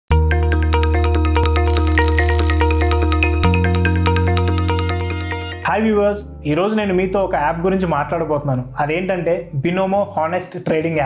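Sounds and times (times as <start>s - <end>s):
quick plucked notes: 1.7s - 3.5s.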